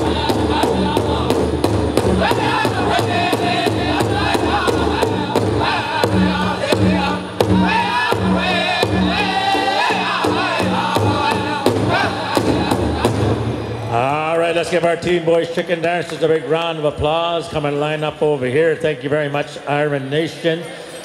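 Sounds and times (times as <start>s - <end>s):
group singing in unison: 0.0s - 13.6s
large drum beat: 0.0s - 13.9s.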